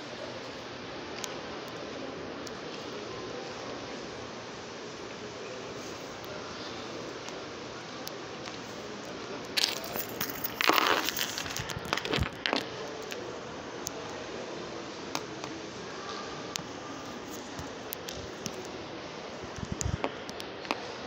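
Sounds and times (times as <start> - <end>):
background hubbub: 0.0 - 21.0
crinkling handling noise: 8.4 - 13.3.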